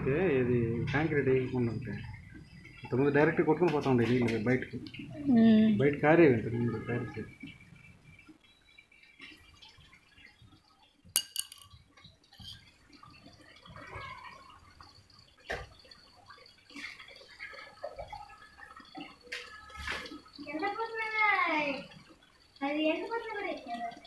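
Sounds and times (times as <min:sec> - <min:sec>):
water poured and splashing: 0:00.0 - 0:24.0
metal bucket clink: 0:11.2 - 0:11.7.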